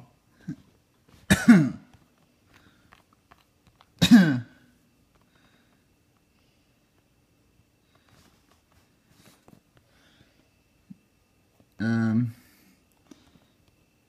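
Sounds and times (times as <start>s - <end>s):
person coughing: 0.4s - 2.0s, 4.0s - 4.6s.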